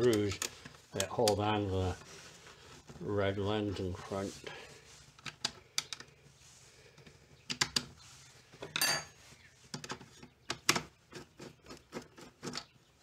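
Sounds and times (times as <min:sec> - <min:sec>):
metallic ring: 0:08.8 - 0:09.2.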